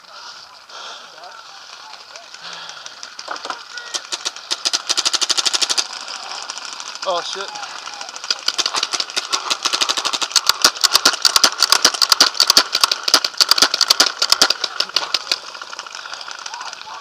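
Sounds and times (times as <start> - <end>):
paintball marker fire: 3.1 - 6.0, 8.2 - 17.0.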